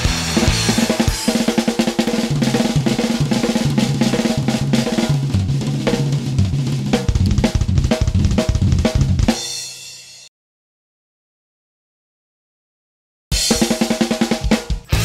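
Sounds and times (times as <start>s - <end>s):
stepping bass line: 0.0s - 9.4s
band music with drum kit: 0.0s - 10.3s, 13.3s - 15.0s.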